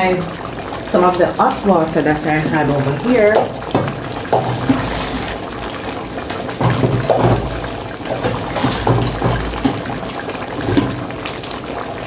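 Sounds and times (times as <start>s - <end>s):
water pouring into metal pan: 0.0s - 12.0s
cookware bumps: 6.6s - 10.0s.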